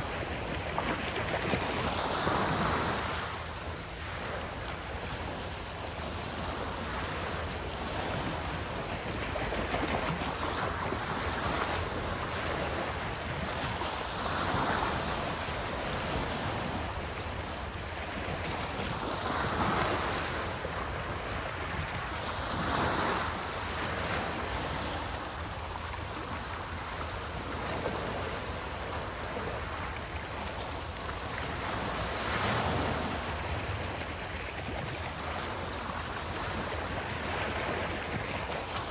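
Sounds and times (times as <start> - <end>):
waves breaking on shore: 0.0 - 38.9.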